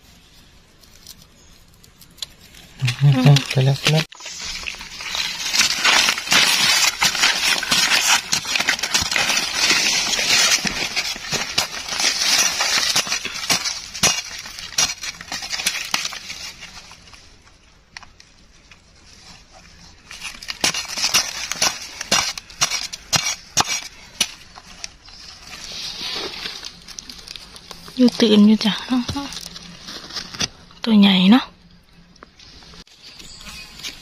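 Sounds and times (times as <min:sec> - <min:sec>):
hand tool digging dry soil: 0:02.2 - 0:16.8, 0:19.9 - 0:28.3.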